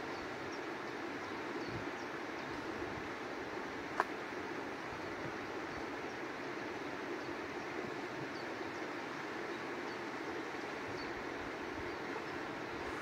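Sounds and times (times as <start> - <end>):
river water rushing: 0.0 - 13.0.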